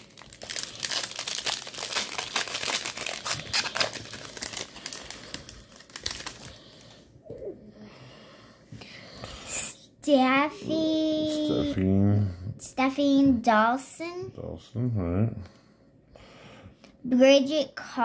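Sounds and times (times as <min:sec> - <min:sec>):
foil wrapper crinkling and tearing: 0:00.0 - 0:07.0.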